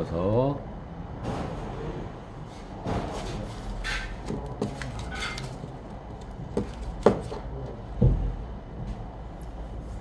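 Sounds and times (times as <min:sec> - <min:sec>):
dull knock: 0:08.0 - 0:08.3.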